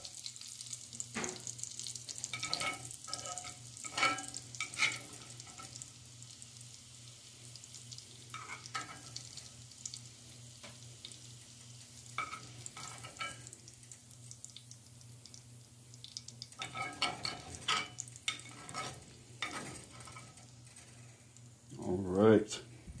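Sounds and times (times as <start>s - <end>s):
onions frying in fat: 0.0s - 23.0s
metal spoon scraping a pan: 2.2s - 5.8s, 8.3s - 9.3s, 12.2s - 13.5s, 16.6s - 21.0s.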